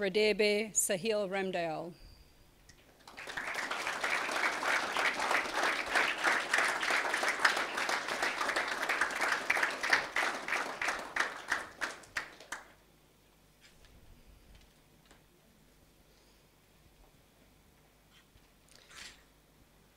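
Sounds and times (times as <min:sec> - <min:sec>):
audience applauding: 0:03.0 - 0:12.8.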